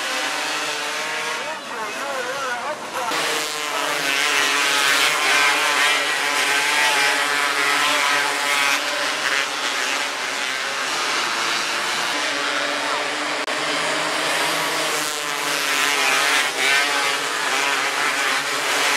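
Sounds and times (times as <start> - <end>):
racing car engines revving: 0.0 - 18.9.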